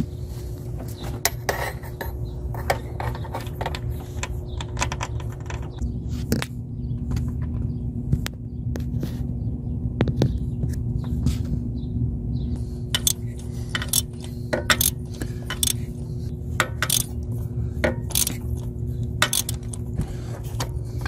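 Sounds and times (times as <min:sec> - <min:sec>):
steady low hum: 0:00.0 - 0:21.0
metallic clinks of hand tool: 0:19.2 - 0:19.8.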